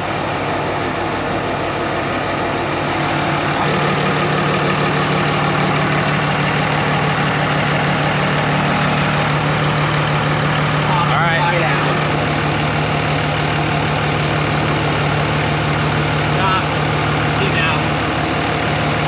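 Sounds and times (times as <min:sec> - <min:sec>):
mechanical drone: 0:02.9 - 0:15.2.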